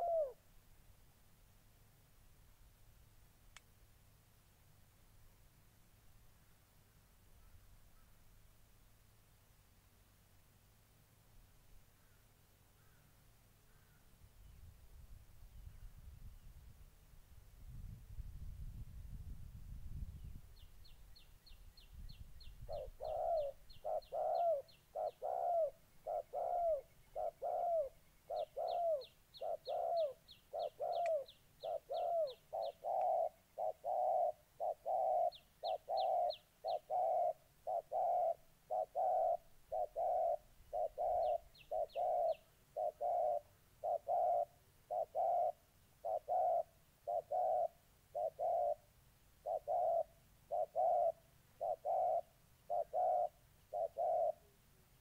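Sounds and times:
doves cooing: 0.0s - 0.4s, 22.7s - 54.6s.

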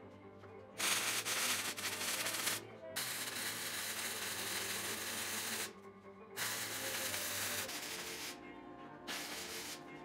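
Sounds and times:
arc welding crackling sizzle: 0.8s - 5.7s, 6.4s - 8.4s, 9.1s - 10.0s.

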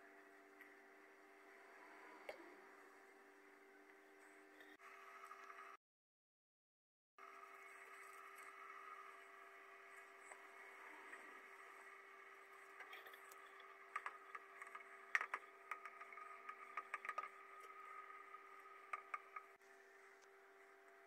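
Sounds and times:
faint steady hum with hiss: 0.0s - 5.8s, 7.2s - 21.0s.

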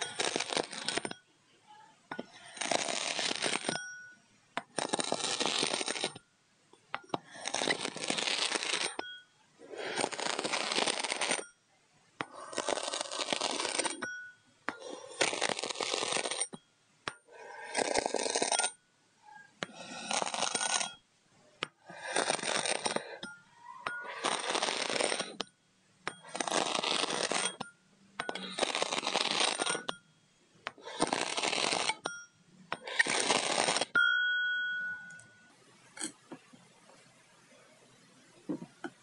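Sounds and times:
knife slicing kinetic sand: 2.2s - 3.8s, 9.6s - 11.4s, 12.2s - 14.1s, 21.6s - 23.2s, 24.0s - 25.4s, 26.1s - 27.6s, 30.7s - 32.1s.

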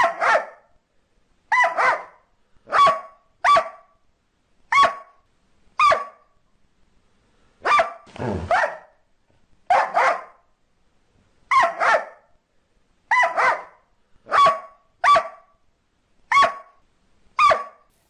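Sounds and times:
dog barking: 0.0s - 0.7s, 1.5s - 4.0s, 4.7s - 5.2s, 5.8s - 6.3s, 7.6s - 9.0s, 9.7s - 10.4s, 11.5s - 12.3s, 13.1s - 15.5s, 16.3s - 16.8s, 17.4s - 17.9s.

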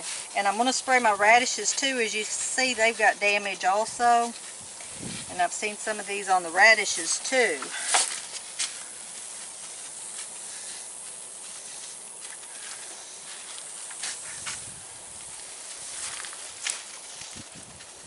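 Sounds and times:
sprayer hissing: 0.0s - 16.3s.

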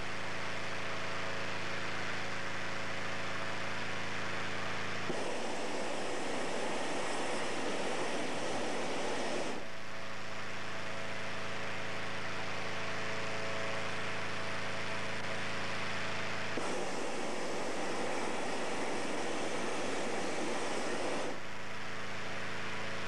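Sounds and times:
inflator fan humming: 5.1s - 9.8s, 13.0s - 23.0s.

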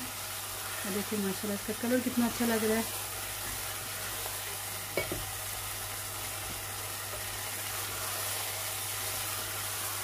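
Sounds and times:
food sizzling in a pot: 0.0s - 10.0s
knock on pot: 5.0s - 5.3s.

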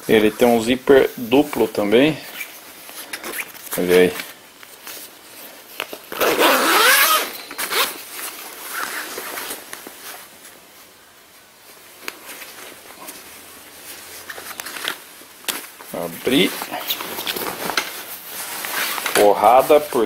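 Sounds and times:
nylon jacket rustling: 0.1s - 20.0s
zipper being zipped: 6.1s - 8.0s.

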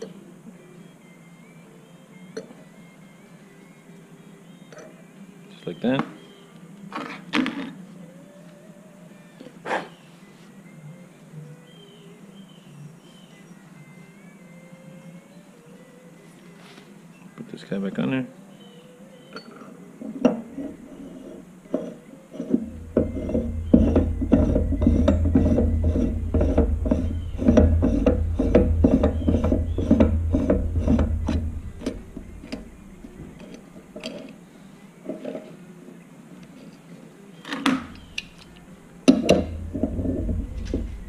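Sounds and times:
metal threads clicking and rubbing: 19.4s - 34.4s, 37.9s - 41.0s
wrench knocking on metal: 21.7s - 33.6s, 39.1s - 41.0s
low handling rumble: 22.4s - 34.2s, 37.9s - 41.0s.

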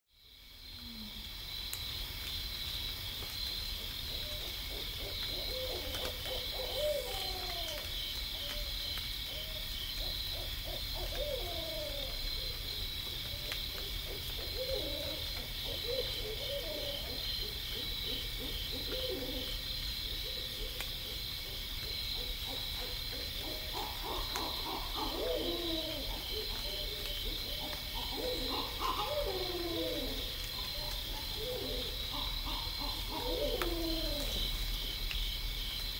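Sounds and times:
owls hooting: 4.3s - 8.6s, 9.4s - 12.6s, 22.2s - 34.4s.

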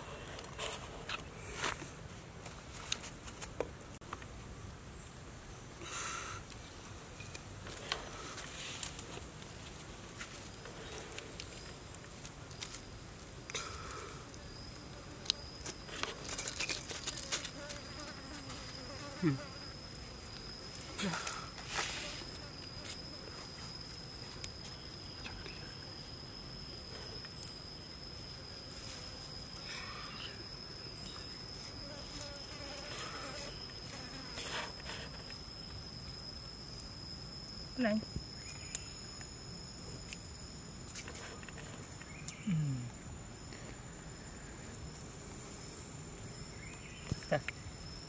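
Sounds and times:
high-pitched insect drone: 13.6s - 48.0s.

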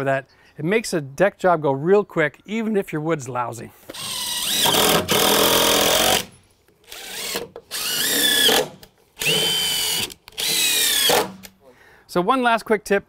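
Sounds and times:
cordless drill driving screws into wood: 3.9s - 11.6s.

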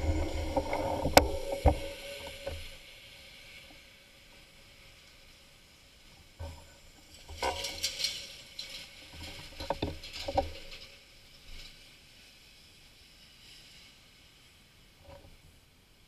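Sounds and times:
bike knocks and rattles: 6.4s - 11.0s
rustling noise: 6.4s - 15.6s.

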